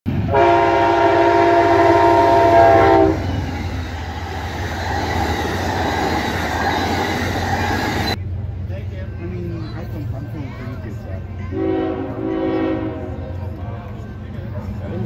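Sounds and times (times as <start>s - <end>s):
train rumble and wheel clatter: 0.1s - 15.0s
train horn: 0.2s - 3.4s, 11.5s - 13.4s.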